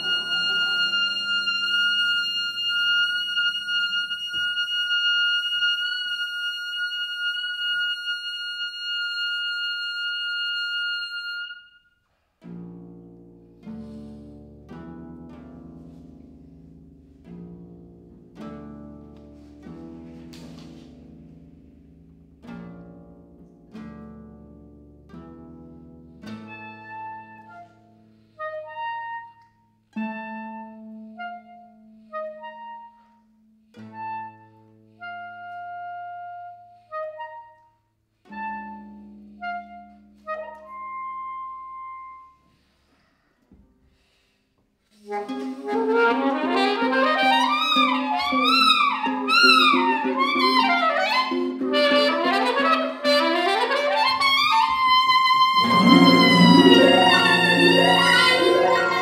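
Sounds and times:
saxophone long high note: 0:55.4 - 0:59.0
harp plucked chords: 0:55.6 - 0:59.0.

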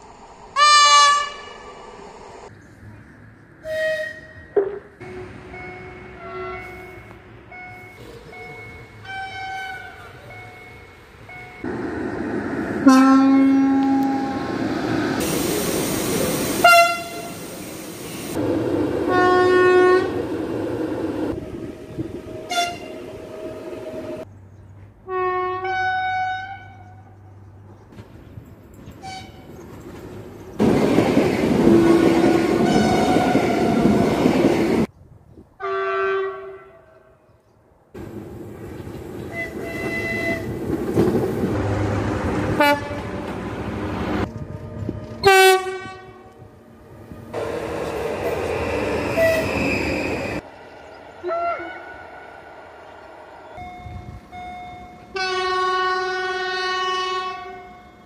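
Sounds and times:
rumble of passing trains: 0:00.0 - 0:58.0
train horn chords: 0:05.0 - 0:08.0, 0:12.8 - 0:14.6, 0:16.6 - 0:17.4, 0:19.0 - 0:20.2, 0:22.4 - 0:24.1, 0:25.1 - 0:27.1, 0:31.6 - 0:34.0, 0:35.6 - 0:37.2, 0:41.6 - 0:43.4, 0:44.7 - 0:46.5, 0:51.2 - 0:52.1, 0:55.1 - 0:58.0.

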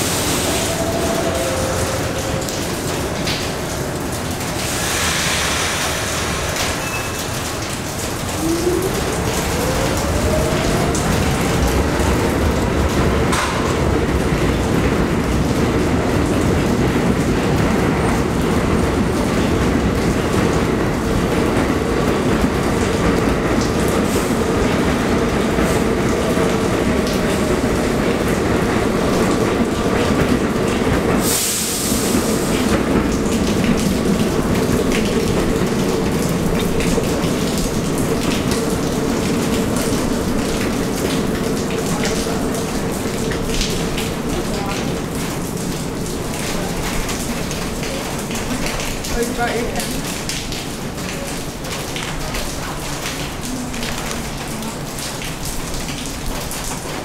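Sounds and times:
train wheels rumbling on rails: 0:00.0 - 0:57.0
brief high hiss: 0:04.8 - 0:07.2.

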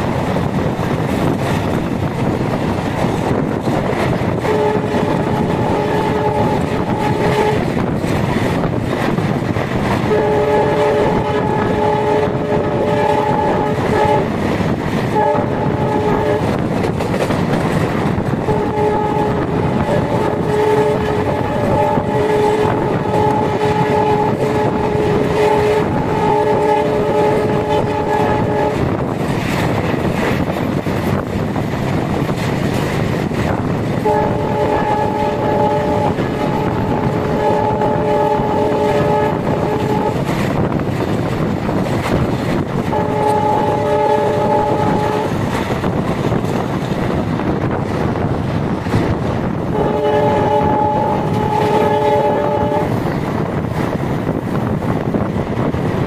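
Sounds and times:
train rumble and clatter: 0:00.0 - 0:56.0
locomotive horn blasts: 0:04.3 - 0:08.0, 0:09.9 - 0:14.4, 0:15.1 - 0:16.6, 0:18.4 - 0:29.0, 0:34.0 - 0:40.6, 0:42.8 - 0:45.4, 0:49.7 - 0:53.1.

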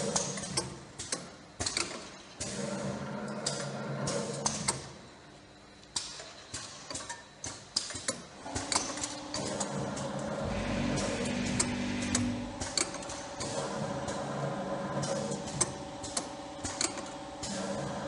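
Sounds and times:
machine parts and bottles clattering: 0:06.0 - 0:10.2
motor humming: 0:09.2 - 0:13.1.

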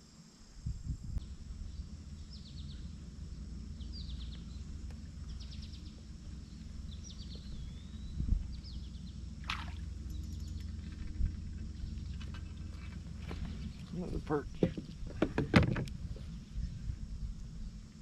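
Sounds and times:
small bird chirping: 0:01.2 - 0:14.1
fast-flowing river rumble: 0:08.9 - 0:10.1.

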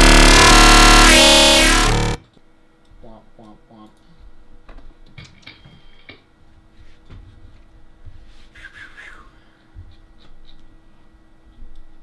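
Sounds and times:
steady low hum: 0:00.0 - 0:02.2.

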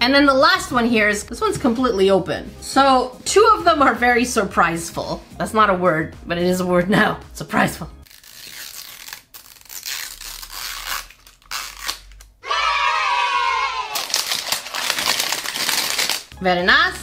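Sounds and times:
plastic wrapping crinkling: 0:08.0 - 0:12.4, 0:13.9 - 0:16.4.

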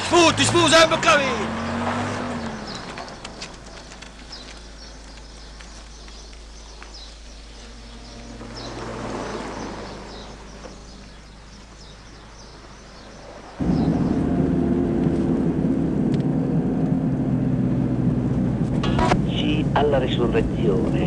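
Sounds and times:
birds chirping: 0:00.0 - 0:21.0
low outdoor hum: 0:00.0 - 0:21.0
low rumble: 0:13.6 - 0:21.0.

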